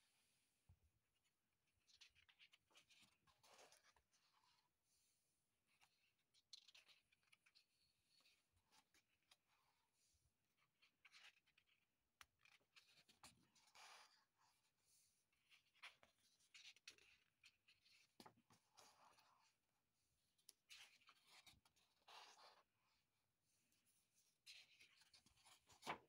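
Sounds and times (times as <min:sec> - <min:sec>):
paper pages rustling: 0:24.6 - 0:26.0.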